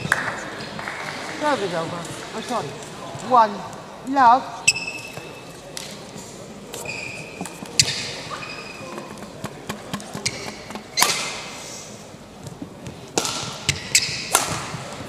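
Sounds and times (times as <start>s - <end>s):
shoe squeaks on court: 4.6s - 5.6s, 6.7s - 9.4s, 10.0s - 11.2s, 13.7s - 14.3s
rackets striking shuttlecock: 9.0s - 11.5s, 13.1s - 15.0s.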